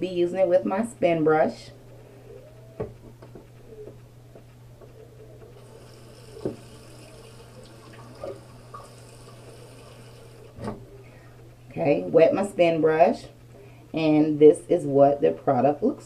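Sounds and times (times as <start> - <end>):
steady low hum: 0.0 - 16.0
tap water running: 5.6 - 10.8.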